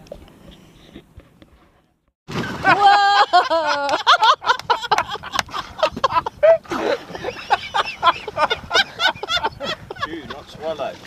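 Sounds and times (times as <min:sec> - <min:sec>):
water splash: 0:02.3 - 0:04.1.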